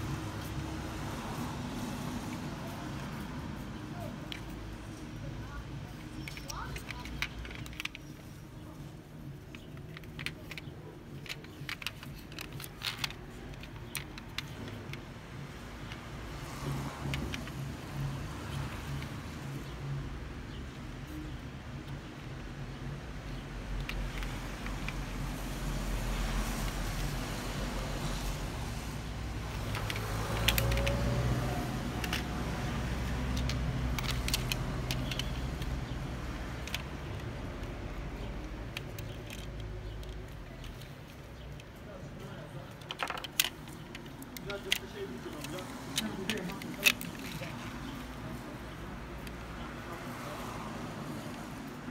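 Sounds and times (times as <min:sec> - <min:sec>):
small clicks and taps of toy car: 0:05.9 - 0:08.4, 0:09.4 - 0:19.7, 0:23.3 - 0:27.2, 0:29.5 - 0:41.8, 0:42.7 - 0:48.0.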